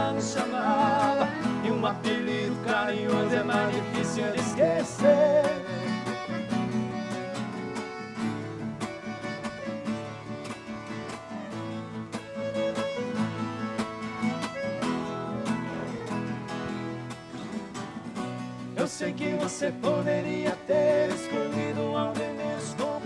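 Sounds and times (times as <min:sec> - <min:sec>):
accordion: 0:00.0 - 0:23.0
acoustic guitars strumming and picking: 0:00.0 - 0:23.0.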